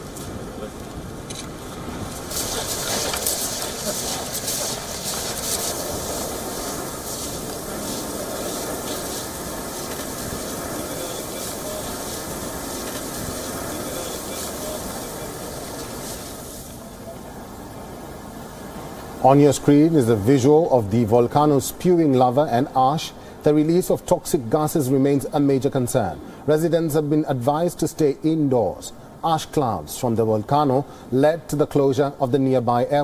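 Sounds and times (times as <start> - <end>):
sharp crackles: 0.0 - 16.8
lava rushing hiss: 0.0 - 17.0.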